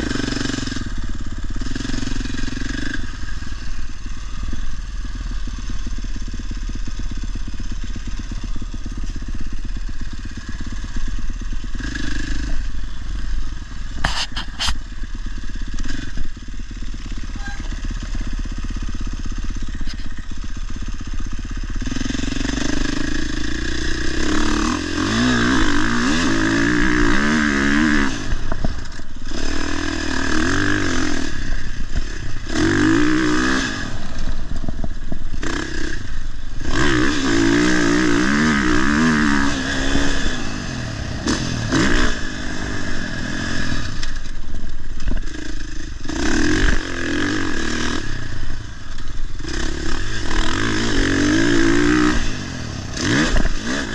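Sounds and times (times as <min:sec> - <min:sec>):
motocross bike engine revving: 0:00.0 - 0:53.9.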